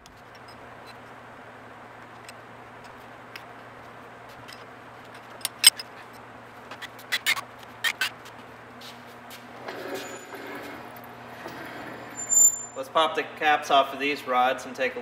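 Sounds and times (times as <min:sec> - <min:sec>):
hand tools clinking on metal: 0:09.8 - 0:11.1, 0:12.2 - 0:12.8.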